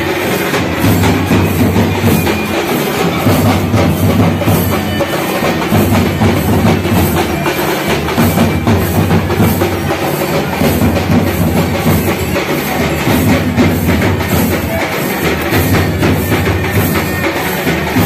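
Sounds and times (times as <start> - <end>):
drum-led percussion music: 0.0 - 18.0.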